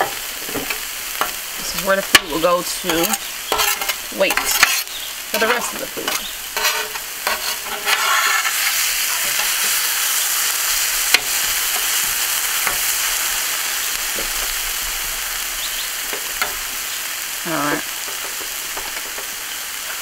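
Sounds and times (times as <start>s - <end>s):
metal spatula scraping and tapping: 0.0s - 1.4s, 2.1s - 9.8s, 11.1s - 12.9s, 18.0s - 20.0s
food sizzling on a griddle: 0.0s - 20.0s.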